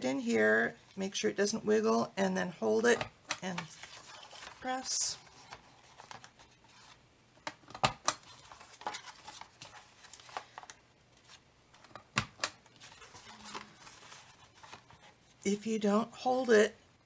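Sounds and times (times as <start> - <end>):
paper handling: 3.4 - 15.4.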